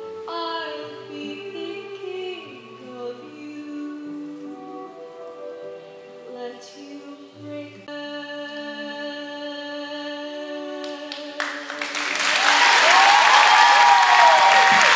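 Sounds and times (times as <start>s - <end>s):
audience applause: 11.4s - 14.9s.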